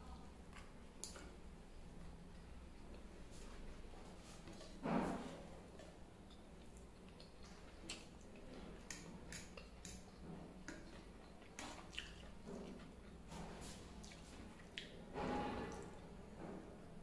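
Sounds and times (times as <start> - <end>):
low steady hum: 0.0 - 17.0
wet chewing and smacking: 5.6 - 15.0.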